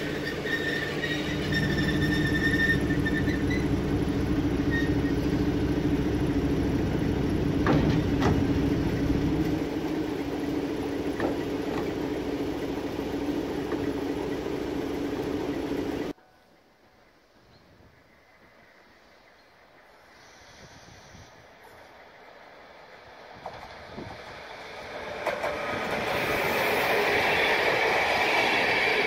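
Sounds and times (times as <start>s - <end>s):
diesel locomotive engine idling: 0.0s - 16.2s
brief high squeal: 0.2s - 3.7s.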